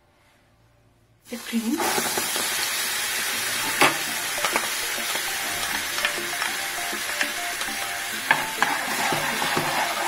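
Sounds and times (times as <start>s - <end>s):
cream sizzling in a frying pan: 1.3s - 10.0s
spatula scraping pan: 3.2s - 10.0s
utensil tapping on pan: 3.6s - 10.0s.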